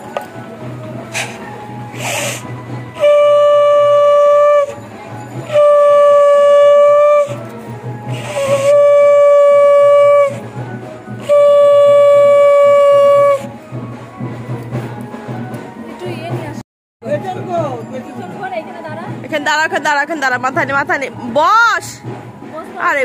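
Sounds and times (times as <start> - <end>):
conch shell blasts: 1.1 - 13.6.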